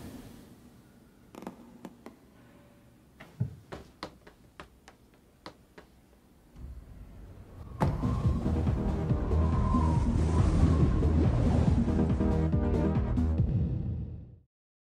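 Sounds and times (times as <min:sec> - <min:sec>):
low rumble: 0:06.6 - 0:14.2.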